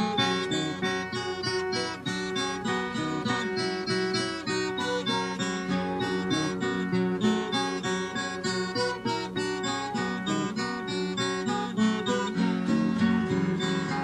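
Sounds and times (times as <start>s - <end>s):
acoustic guitar picking: 0.0s - 14.0s.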